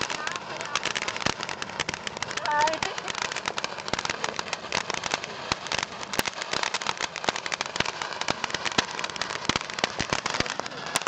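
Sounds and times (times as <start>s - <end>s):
fireworks bangs: 0.0s - 11.0s
fireworks crackling and popping: 0.0s - 11.0s.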